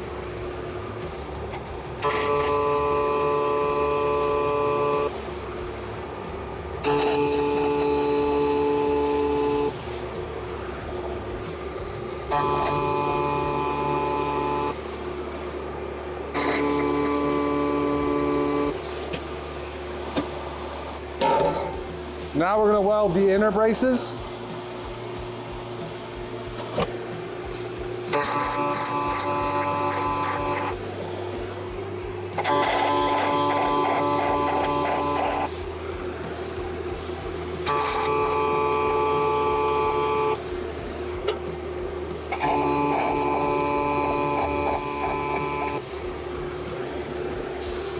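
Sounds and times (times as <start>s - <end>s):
welding arc buzzing: 0.0s - 5.5s, 6.3s - 10.4s, 11.4s - 15.1s, 16.3s - 19.2s, 27.4s - 31.0s, 32.4s - 35.9s, 36.9s - 40.8s, 42.2s - 47.9s.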